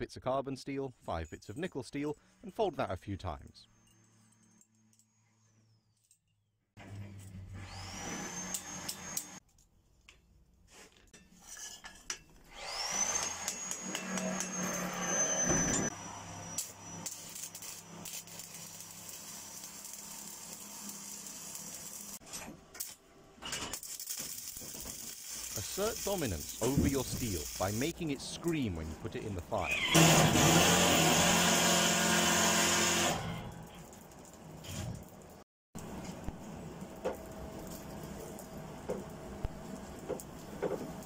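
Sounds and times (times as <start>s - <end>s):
angle grinder whining: 7.5s - 9.4s, 12.5s - 22.2s
arc welding crackling hiss: 16.4s - 22.2s, 23.7s - 28.0s.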